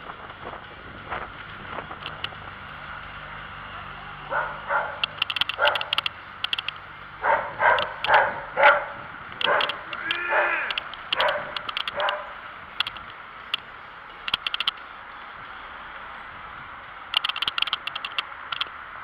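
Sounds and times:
wind noise: 0.0 - 2.7, 4.3 - 14.8
road noise: 0.0 - 19.0
dog barking: 4.3 - 6.0, 7.2 - 12.4.

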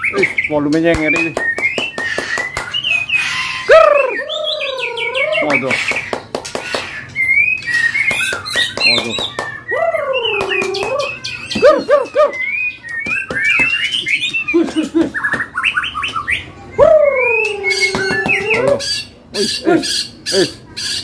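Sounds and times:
songbirds singing: 0.0 - 21.0.

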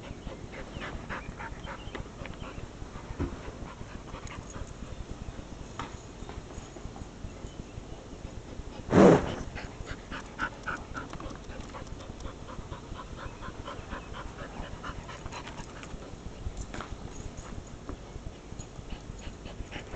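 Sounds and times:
small dog panting: 0.0 - 5.2, 8.2 - 16.4, 18.2 - 19.9.

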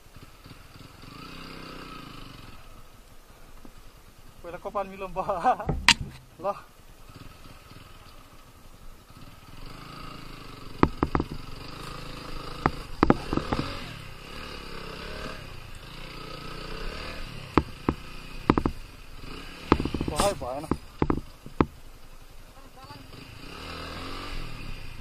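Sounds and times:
motorcycle engine at low revs: 0.0 - 25.0
sharp clicks and knocks: 5.7 - 6.3, 10.8 - 11.7, 12.6 - 13.8, 17.5 - 18.8, 19.6 - 21.8.

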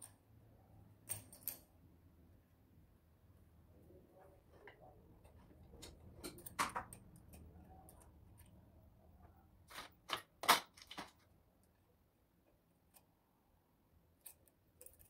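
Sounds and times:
small metal parts clicking: 1.0 - 1.7, 14.2 - 15.0.

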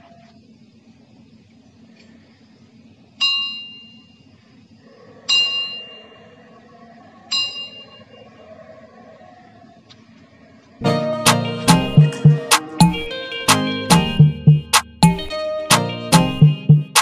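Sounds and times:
ringing metal object struck: 5.3 - 6.1, 7.3 - 8.0.

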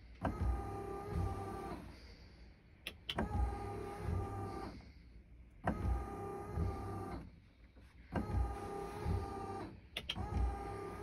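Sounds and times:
wiper motors whining: 0.0 - 2.0, 2.9 - 11.0
sharp clicks: 9.9 - 10.4.

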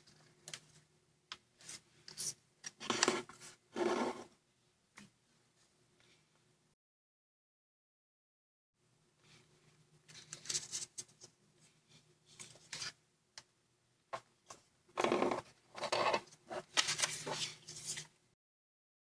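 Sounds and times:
paper rustling and crinkling: 10.1 - 11.3, 15.8 - 18.1.

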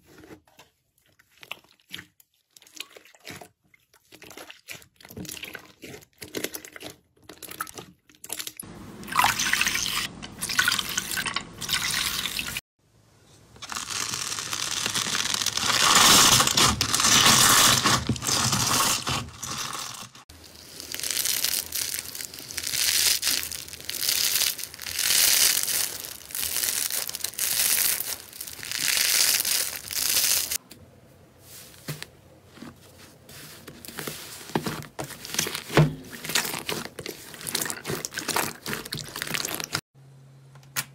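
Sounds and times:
slime squishing: 0.0 - 8.3, 13.6 - 30.6, 32.6 - 39.8.

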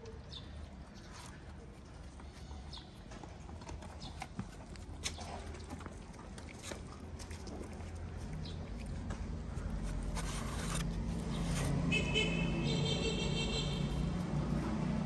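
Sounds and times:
cats eating from plastic trays: 0.0 - 11.6.

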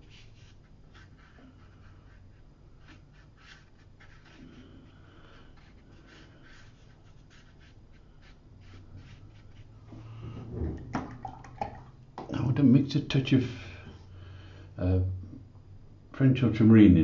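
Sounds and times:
brush strokes on paper: 0.0 - 10.5.

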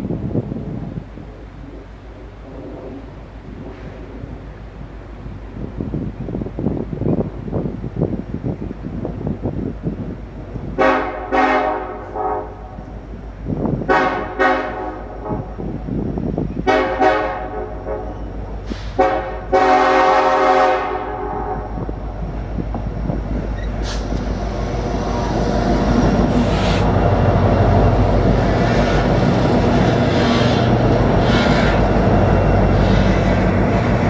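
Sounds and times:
locomotives rumbling: 0.0 - 10.8, 21.1 - 34.0
locomotive air horn blasts: 10.8 - 12.9, 13.8 - 15.6, 16.6 - 21.8.

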